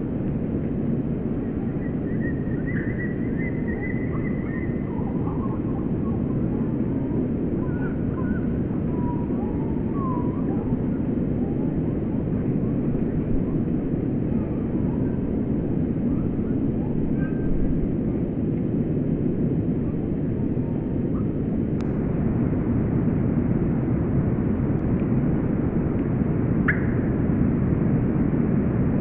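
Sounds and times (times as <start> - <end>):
steady low rumble: 0.0 - 29.0
small birds chirping: 1.6 - 6.3.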